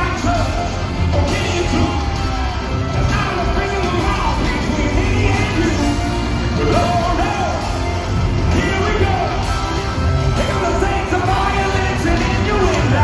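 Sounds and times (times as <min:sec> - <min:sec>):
drums: 0:00.0 - 0:13.0
electric guitars: 0:00.0 - 0:13.0
lead singer vocals: 0:10.3 - 0:13.0.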